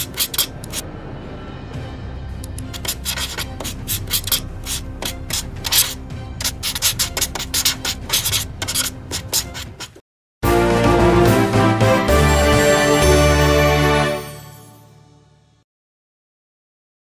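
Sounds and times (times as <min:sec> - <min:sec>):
pencil scratching on paper: 0:00.0 - 0:00.8, 0:02.7 - 0:10.0.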